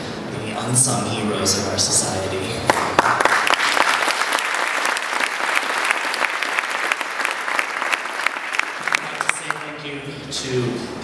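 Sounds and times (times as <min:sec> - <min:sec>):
audience applauding: 0:02.7 - 0:09.8.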